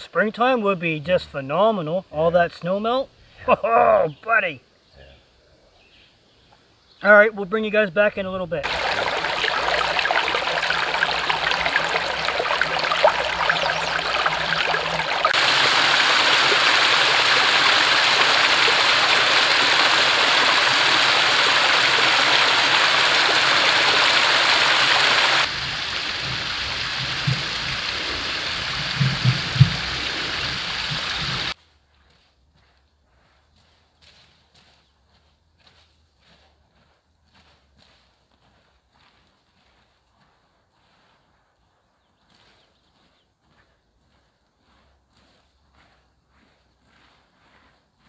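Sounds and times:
small waterfall cascading: 8.6s - 31.6s
stream trickling over rocks: 8.6s - 31.6s.

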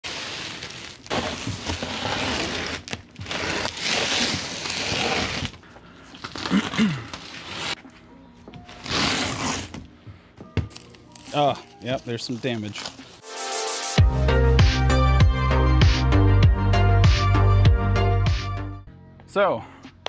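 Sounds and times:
cardboard box scraping on concrete: 0.0s - 5.6s, 7.2s - 7.8s, 8.7s - 9.8s.

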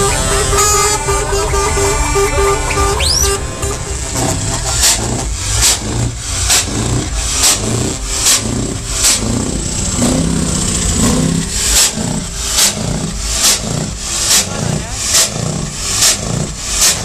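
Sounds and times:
steady low rumble: 0.0s - 16.8s.

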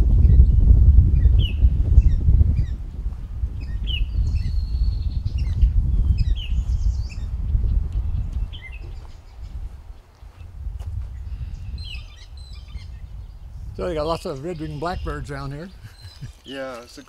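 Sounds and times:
microphone handling: 0.0s - 12.0s
wind rumble: 0.0s - 16.4s
birds whistling calls: 1.2s - 2.8s, 3.6s - 10.5s, 11.1s - 17.0s.

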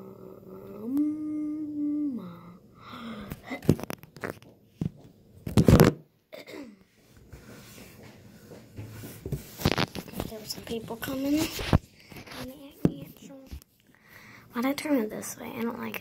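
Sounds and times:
girl singing a long note: 0.0s - 2.7s.

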